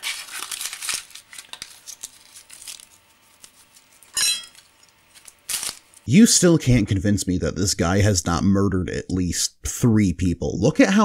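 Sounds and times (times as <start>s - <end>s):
onion skin crackling and tearing: 0.0s - 6.1s
knife clinking on ceramic plate: 4.1s - 4.6s.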